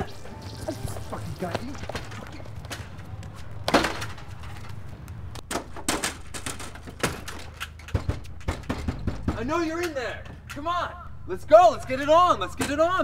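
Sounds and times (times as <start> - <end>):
sharp knocks on glass: 7.9 - 9.5.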